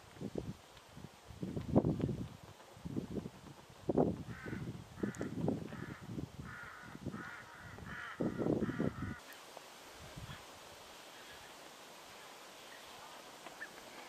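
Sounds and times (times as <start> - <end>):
crow calling: 4.3 - 9.4.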